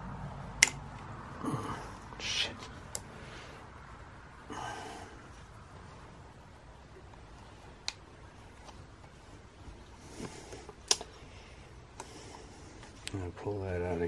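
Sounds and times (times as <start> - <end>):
person exhaling with effort: 1.4 - 2.6, 4.4 - 5.3.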